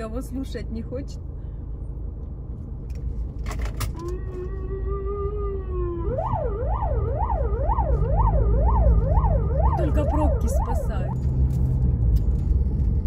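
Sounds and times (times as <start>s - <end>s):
low traffic rumble: 0.0s - 13.0s
police siren: 3.9s - 11.2s.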